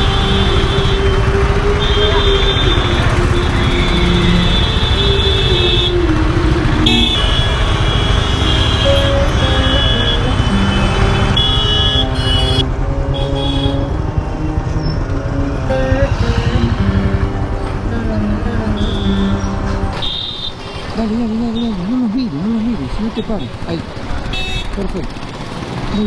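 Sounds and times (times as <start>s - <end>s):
vehicle horns honking: 0.0s - 17.7s, 18.6s - 21.0s, 23.2s - 24.8s
motorcycle engine and wind rumble: 20.6s - 26.0s.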